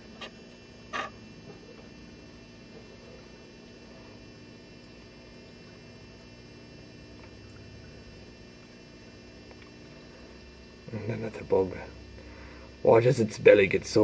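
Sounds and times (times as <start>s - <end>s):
faint electrical hum: 0.0s - 14.0s
thin high whine: 0.0s - 14.0s.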